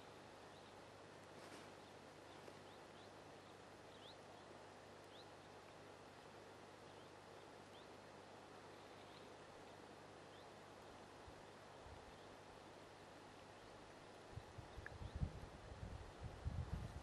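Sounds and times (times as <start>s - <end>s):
steady hiss: 0.0s - 17.0s
small bird chirping: 1.5s - 4.5s, 5.1s - 5.5s.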